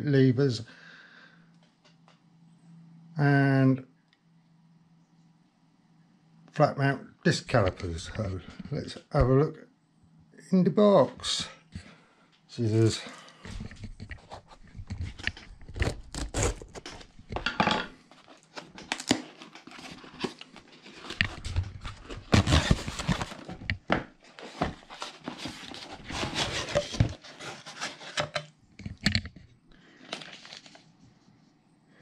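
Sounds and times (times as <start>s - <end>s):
packing tape tearing: 15.1s - 17.1s, 18.4s - 23.5s
plastic wrapping crinkling: 18.1s - 28.2s, 30.0s - 30.9s
cardboard flaps scraping: 18.4s - 28.2s.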